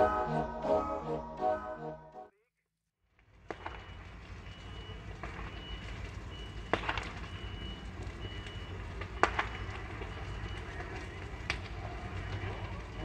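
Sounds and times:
fire engine rumbling: 0:03.3 - 0:13.0.

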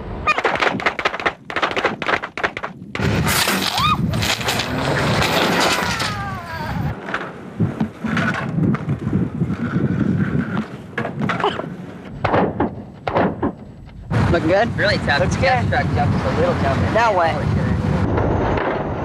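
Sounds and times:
skateboard scraping and grinding: 0:00.0 - 0:14.4
skateboard squeal: 0:00.2 - 0:00.6, 0:03.3 - 0:04.4, 0:05.3 - 0:07.0
skateboard knocks and scuffs: 0:00.3 - 0:06.2, 0:06.9 - 0:14.0.

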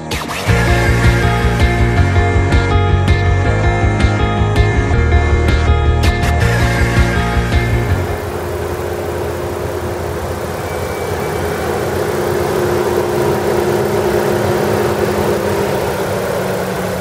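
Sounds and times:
car engine idling: 0:06.4 - 0:17.0.

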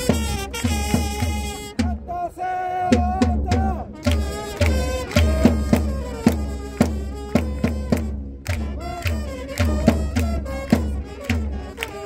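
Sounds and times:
bass drum beat: 0:00.0 - 0:02.1, 0:02.9 - 0:11.8
trumpets playing a melody: 0:00.0 - 0:02.1, 0:03.7 - 0:12.0
fans clapping: 0:04.0 - 0:12.0.

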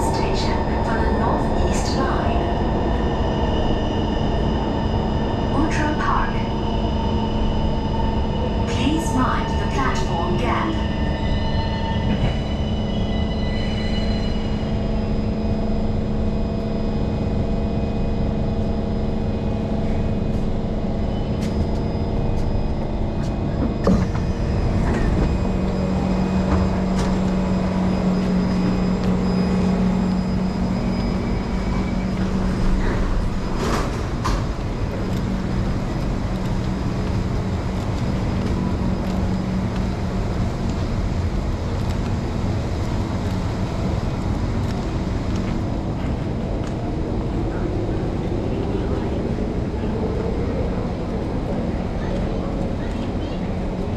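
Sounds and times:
train electrical hum: 0:00.0 - 0:53.9
train doors clicking and knocking: 0:32.9 - 0:34.8.

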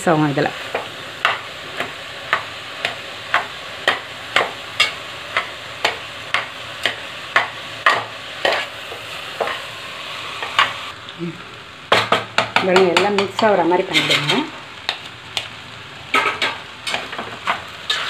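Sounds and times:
food sizzling in pan: 0:00.0 - 0:18.0
utensil scraping pan: 0:07.9 - 0:08.8, 0:13.2 - 0:14.5, 0:16.1 - 0:18.0.

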